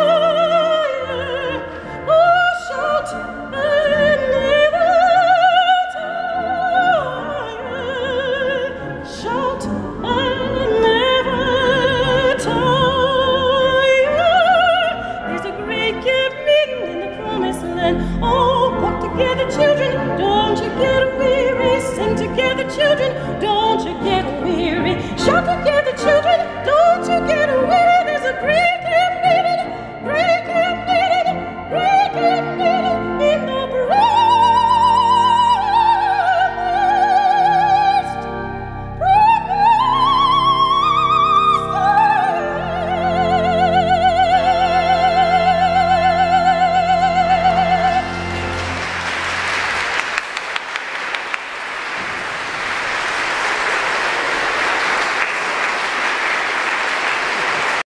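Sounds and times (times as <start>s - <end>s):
operatic soprano singing: 0.0s - 48.7s
pipe organ: 0.0s - 57.8s
audience applause: 48.0s - 57.9s.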